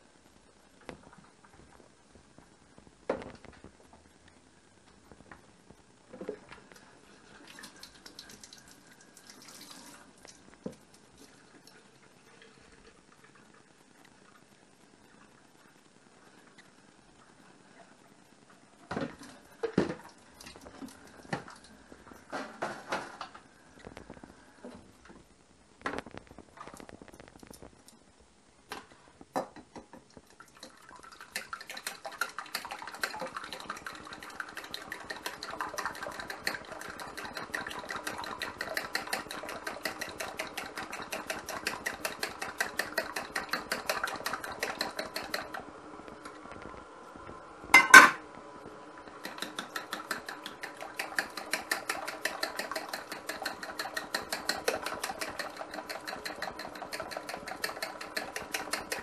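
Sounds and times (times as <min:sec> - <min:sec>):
utensil whisking in a bowl: 0:30.2 - 0:45.6, 0:49.1 - 0:59.0.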